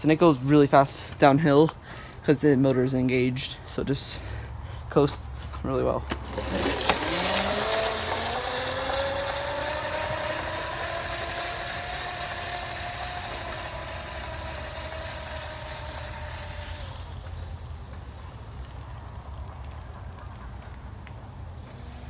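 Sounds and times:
tyres rolling on concrete: 5.0s - 22.0s
electric scooter motor whining: 5.7s - 22.0s.

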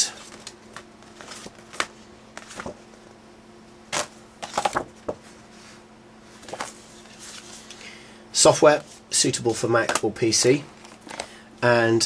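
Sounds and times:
faint steady hum: 0.0s - 12.0s
paper rustles and taps: 0.2s - 2.8s, 3.9s - 5.2s, 6.4s - 7.4s, 9.8s - 11.2s.

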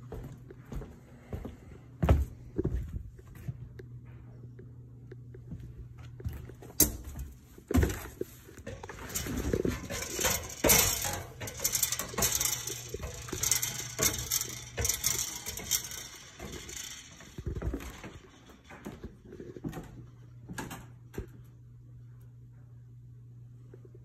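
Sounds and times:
footsteps on wooden floor: 0.0s - 3.6s.

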